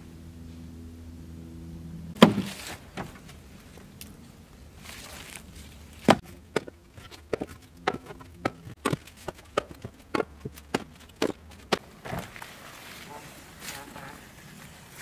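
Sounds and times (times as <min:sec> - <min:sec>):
logs landing on pile: 0:02.2 - 0:03.4, 0:04.9 - 0:12.6.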